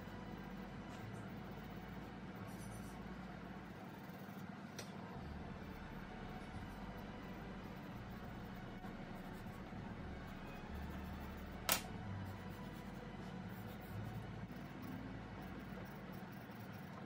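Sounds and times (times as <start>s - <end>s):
steady low hum: 0.0s - 17.0s
sharp pencil click: 11.7s - 11.9s.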